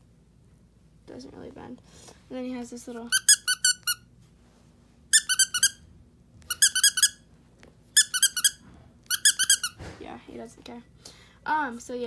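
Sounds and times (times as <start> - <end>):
dog toy squeaker squeaking: 3.1 - 4.0, 5.1 - 5.8, 6.4 - 7.2, 8.0 - 9.8.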